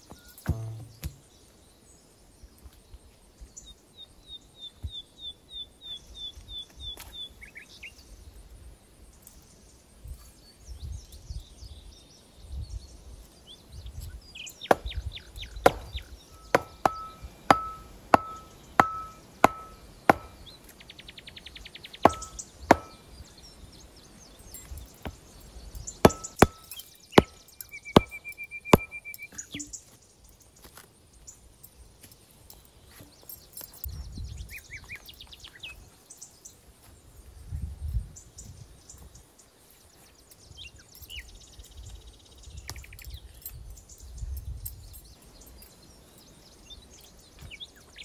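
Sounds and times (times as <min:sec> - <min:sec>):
axe chopping wood: 0:00.4 - 0:01.3, 0:14.6 - 0:20.4, 0:22.0 - 0:23.1, 0:26.0 - 0:29.7.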